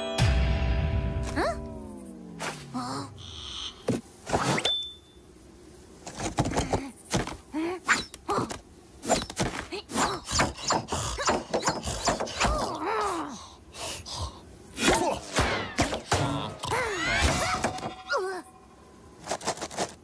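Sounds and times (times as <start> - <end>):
cartoon characters grunting: 14.8 - 18.4.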